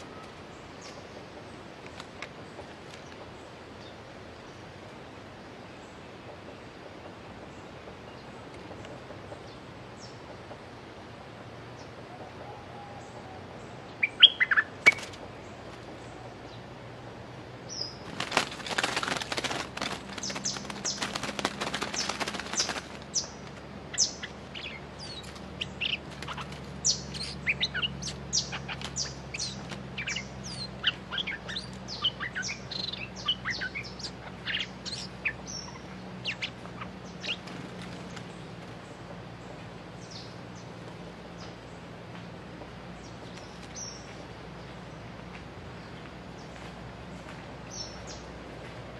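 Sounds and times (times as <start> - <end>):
bird call notes: 12.1 - 15.1
wing flapping: 14.7 - 15.9, 17.9 - 38.9
quick bird chirps: 17.7 - 38.9.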